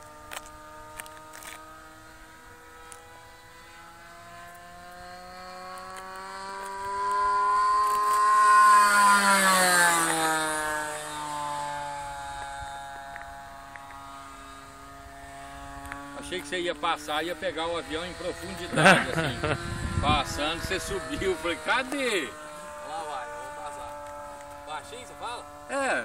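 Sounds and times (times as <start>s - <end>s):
model airplane engine fly-by: 0.0s - 26.0s.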